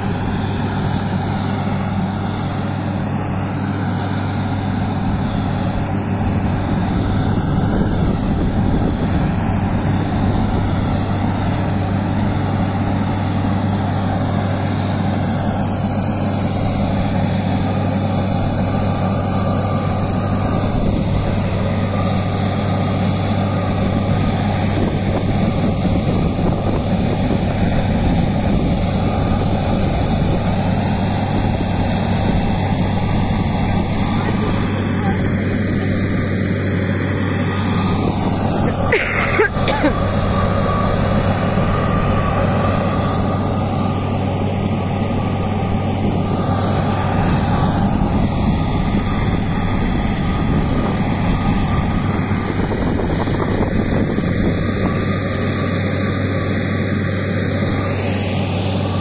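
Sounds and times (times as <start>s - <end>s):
diesel engines droning: 0.0s - 59.0s.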